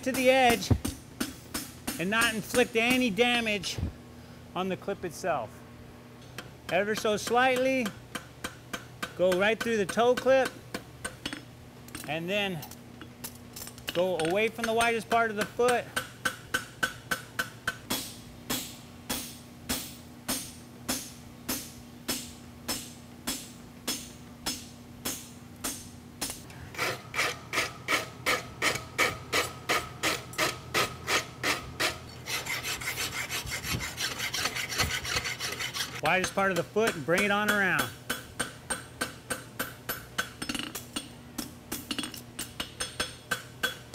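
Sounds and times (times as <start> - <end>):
hammer striking steel on anvil: 13.9 - 26.4, 36.0 - 43.9
rasp scraping metal: 26.7 - 36.6.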